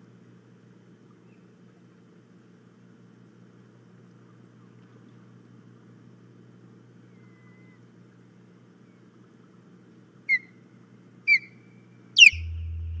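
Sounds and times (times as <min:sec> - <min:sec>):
steady low hum: 0:00.0 - 0:13.0
osprey whistled chirps: 0:07.0 - 0:07.9, 0:10.3 - 0:10.6, 0:11.3 - 0:13.0.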